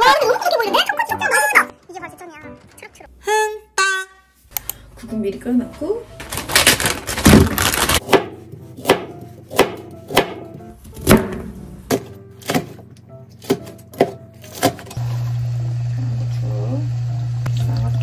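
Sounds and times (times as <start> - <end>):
knife hitting cutting board: 13.4 - 14.9.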